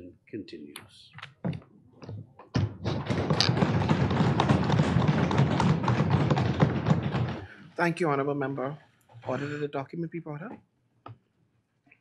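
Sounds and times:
people thumping on wooden desks: 0:01.2 - 0:08.0.

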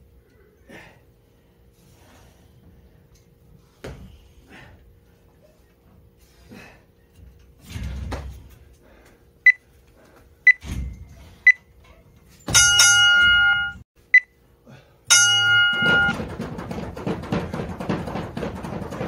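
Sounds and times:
timer short beeps: 0:12.6 - 0:14.4, 0:15.1 - 0:16.2
long buzzer tone: 0:15.1 - 0:16.2
battle ropes slapping floor: 0:15.2 - 0:19.0.

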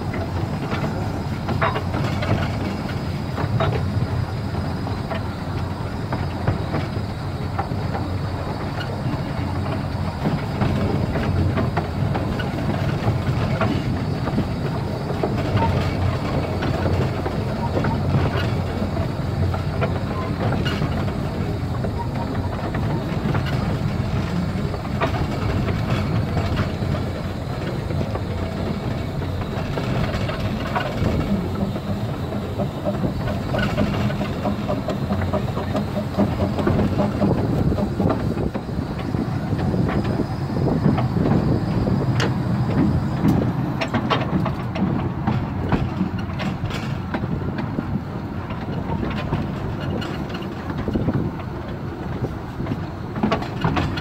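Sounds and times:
steam locomotive running: 0:00.0 - 0:54.0
wheels clicking on track: 0:00.0 - 0:54.0.

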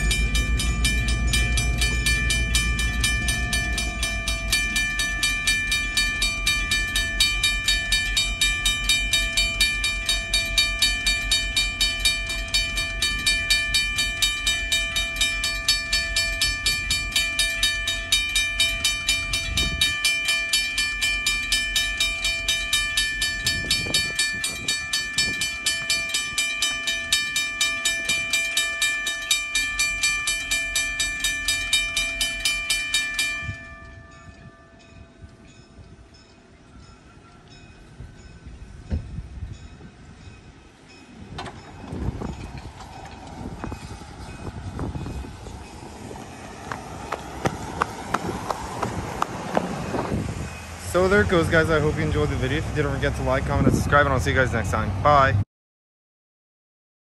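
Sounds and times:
low rumble: 0:00.0 - 0:17.0
railroad crossing bell ringing: 0:00.0 - 0:55.3.

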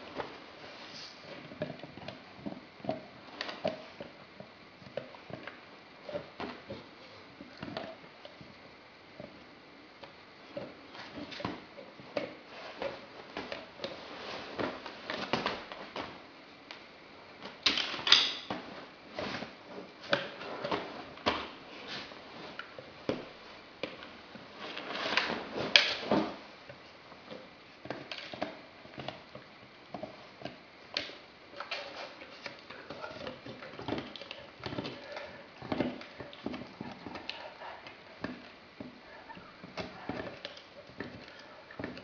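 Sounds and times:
dog crunching rawhide chew: 0:27.8 - 0:38.9.

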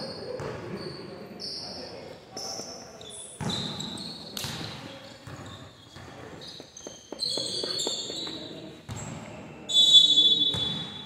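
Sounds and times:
voices echoing: 0:00.0 - 0:11.0
basketball bouncing on court: 0:03.4 - 0:09.3, 0:10.5 - 0:11.0.

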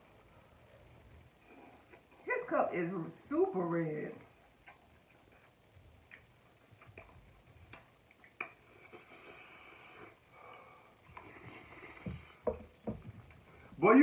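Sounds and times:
slurping noodles: 0:08.4 - 0:10.3.

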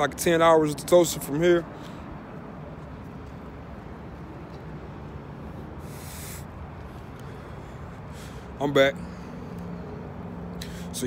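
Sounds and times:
low outdoor rumble: 0:00.0 - 0:11.0
smoker exhaling: 0:05.8 - 0:06.6.

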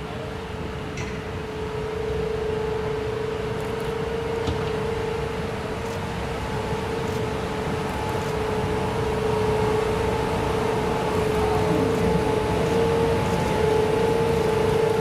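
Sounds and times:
locomotive electrical hum: 0:00.0 - 0:15.0
low train rumble: 0:00.0 - 0:15.0.

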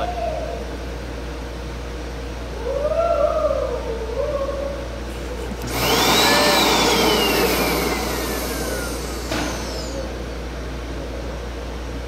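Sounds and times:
solder sucker motor whining: 0:05.1 - 0:10.5.

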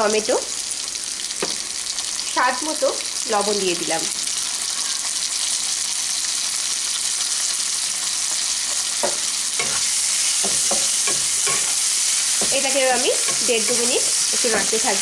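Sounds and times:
vegetables sizzling in oil: 0:00.0 - 0:15.0
spatula scraping pan: 0:08.7 - 0:15.0.

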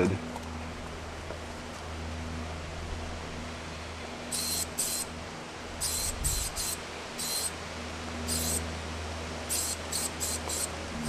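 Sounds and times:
steady low hum: 0:00.0 - 0:11.0
spray paint can hissing: 0:04.3 - 0:05.1, 0:05.8 - 0:07.5, 0:08.3 - 0:08.6, 0:09.5 - 0:10.7.

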